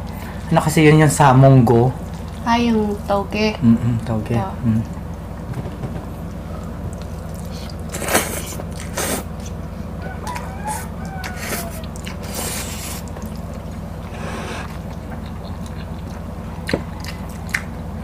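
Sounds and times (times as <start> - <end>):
steady low hum: 0.0 - 18.0
noodles slurped and chewed: 7.0 - 9.6, 11.4 - 16.2
faint sliding calls: 10.2 - 13.1.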